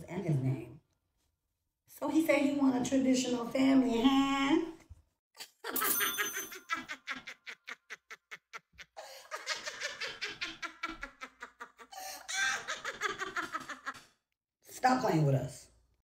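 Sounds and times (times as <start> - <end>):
woman laughing hard: 5.4 - 14.0.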